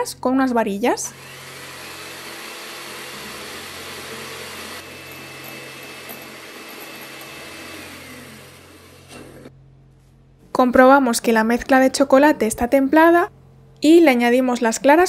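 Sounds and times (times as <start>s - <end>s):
electric hand mixer running: 1.1s - 9.5s.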